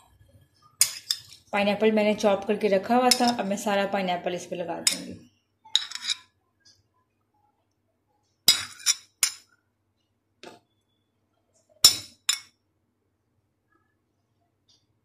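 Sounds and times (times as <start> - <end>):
spoon clinking against glass bowl: 3.1 - 3.5, 4.8 - 5.1, 11.8 - 12.6.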